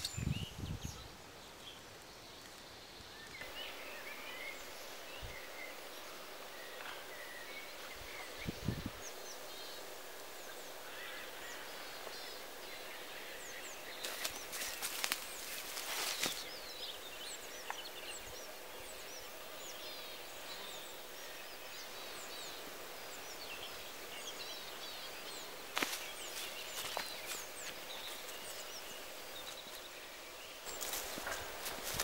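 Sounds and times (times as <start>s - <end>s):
small birds chirping: 0.0s - 32.0s
footsteps on dry grass: 14.0s - 16.5s, 25.7s - 28.4s, 30.7s - 32.0s.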